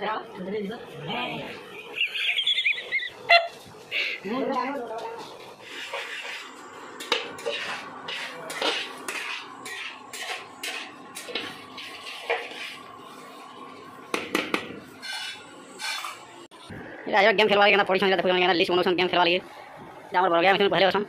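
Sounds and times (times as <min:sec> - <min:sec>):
metal spoon scraping metal pan: 0:05.6 - 0:12.9, 0:15.0 - 0:16.3.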